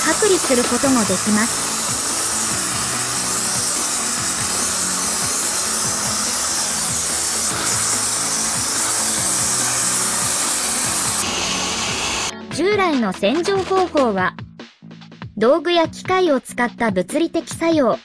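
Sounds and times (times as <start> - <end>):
hot-water jet spraying hiss: 0.0 - 12.3
background music: 0.0 - 18.0.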